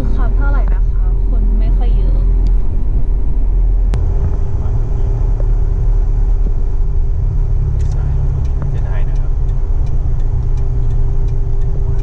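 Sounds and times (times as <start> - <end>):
car engine and road rumble: 0.0 - 12.0
sharp click: 7.8 - 12.0.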